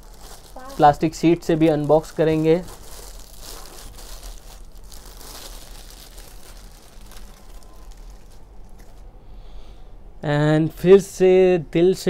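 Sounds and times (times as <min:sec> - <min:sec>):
plastic sleeve crinkling: 0:00.0 - 0:09.1.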